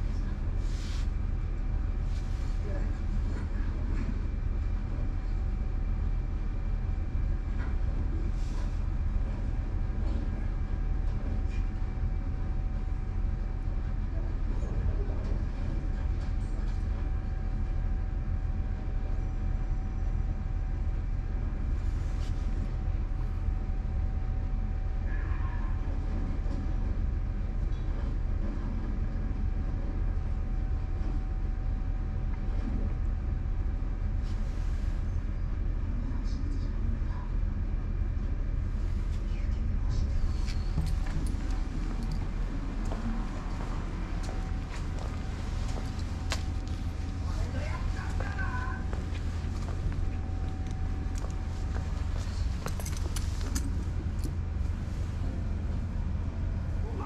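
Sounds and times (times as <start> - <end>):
faint constant hum: 0.0 - 57.0
low mechanical rumble: 0.0 - 57.0
hand rustling on fur: 0.6 - 1.1
light clicks and clinks: 50.6 - 54.4.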